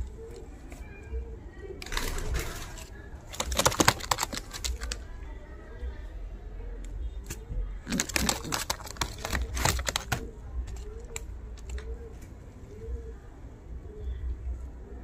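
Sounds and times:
pigeons cooing: 0.0s - 5.2s, 6.5s - 15.0s
rapid clicks and rustles: 1.8s - 5.2s, 7.2s - 12.4s.

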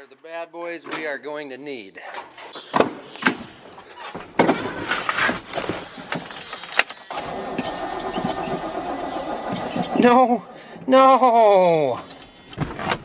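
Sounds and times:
truck engine starting and running: 6.1s - 12.6s.

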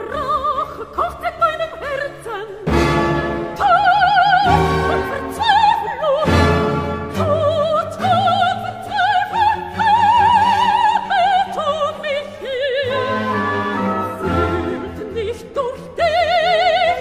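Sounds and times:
operatic voice singing: 0.0s - 17.0s
orchestral accompaniment: 2.6s - 12.1s, 12.8s - 16.8s.

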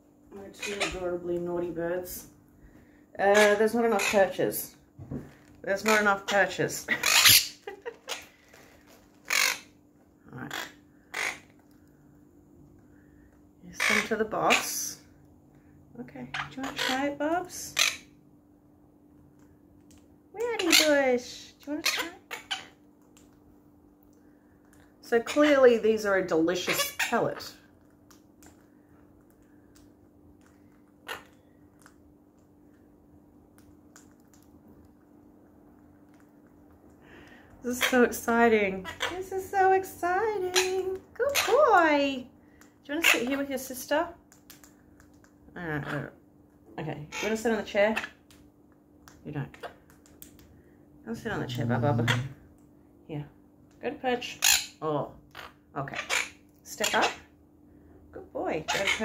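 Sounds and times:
faint steady hum: 0.0s - 59.0s
parakeets squawking: 0.4s - 2.3s, 3.2s - 4.8s, 5.6s - 8.4s, 9.2s - 11.6s, 13.7s - 15.1s, 16.2s - 18.2s, 20.4s - 22.8s, 25.0s - 27.7s, 31.0s - 31.5s, 37.6s - 42.2s, 42.9s - 43.9s, 45.6s - 46.2s, 47.0s - 48.3s, 51.7s - 52.4s, 54.2s - 57.3s, 58.5s - 59.0s
parrots crunching dry pellets: 5.4s - 9.8s, 10.5s - 12.1s, 12.7s - 14.9s, 21.8s - 38.3s, 38.9s - 39.2s, 40.4s - 41.8s, 42.4s - 50.7s.

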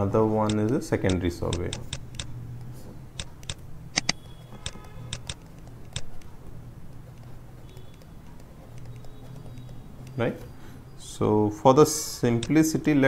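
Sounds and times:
sharp clicks and taps: 0.4s - 10.6s, 12.3s - 12.6s.

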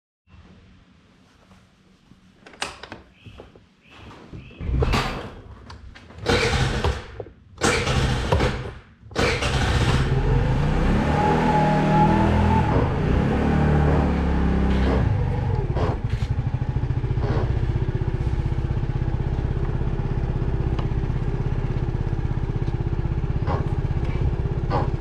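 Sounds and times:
motor scooter engine revving: 6.2s - 25.0s.

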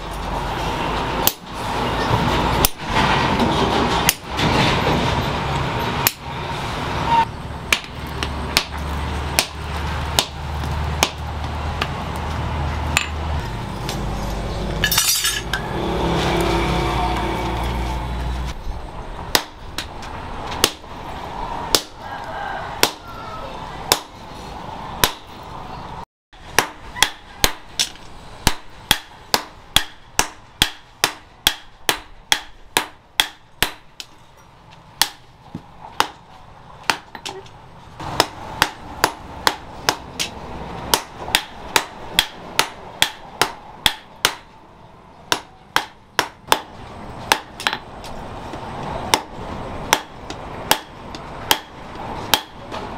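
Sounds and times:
hammer striking steel on anvil: 12.9s - 13.2s, 14.8s - 16.5s, 49.9s - 52.8s.

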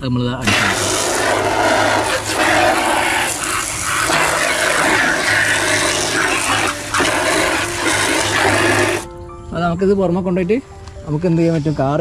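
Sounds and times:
pump humming: 0.4s - 9.1s
water jet splashing: 0.4s - 9.1s.

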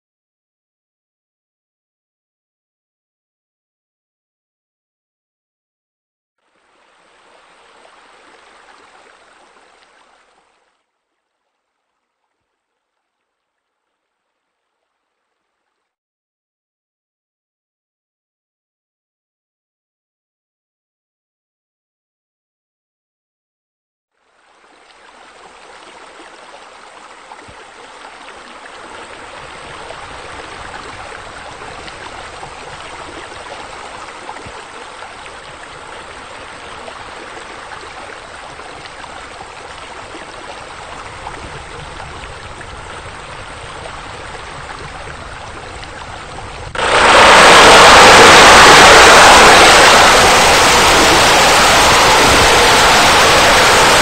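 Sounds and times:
water rushing and splashing: 6.5s - 10.6s, 24.3s - 54.0s.

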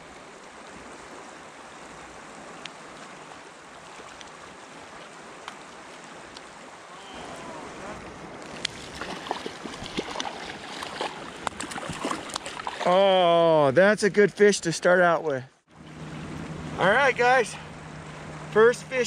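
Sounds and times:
river water running: 0.0s - 19.0s
water splashes: 0.0s - 19.0s.

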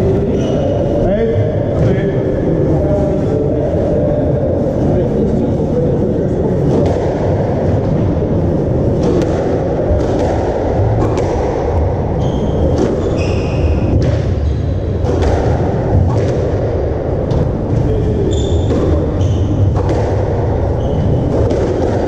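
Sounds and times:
low hall rumble: 0.0s - 22.0s
squash ball knocks: 9.0s - 11.9s, 15.0s - 17.5s, 18.6s - 22.0s
shoes squeaking on wooden floor: 12.2s - 14.9s, 17.9s - 19.8s.

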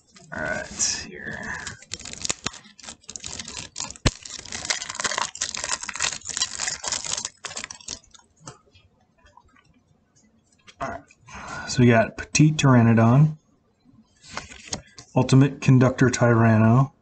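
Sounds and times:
shrink wrap crinkling: 0.0s - 8.3s.

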